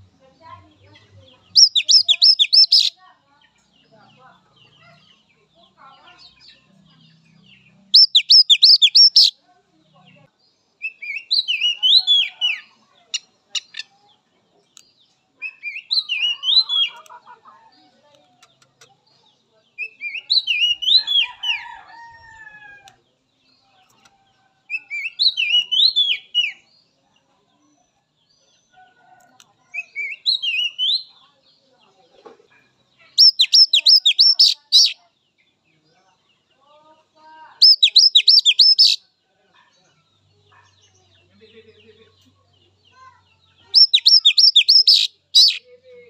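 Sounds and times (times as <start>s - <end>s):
bird singing whistled phrases: 1.6s - 2.9s, 8.0s - 9.3s, 10.8s - 12.3s, 24.7s - 26.6s, 29.8s - 31.1s, 33.2s - 35.0s, 37.6s - 39.0s, 43.7s - 45.6s.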